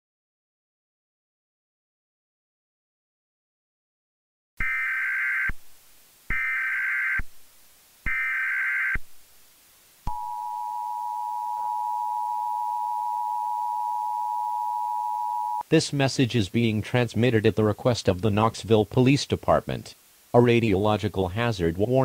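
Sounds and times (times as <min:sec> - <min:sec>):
digital data tone bursts: 0:08.1 - 0:09.0
two-tone attention signal: 0:10.1 - 0:15.6.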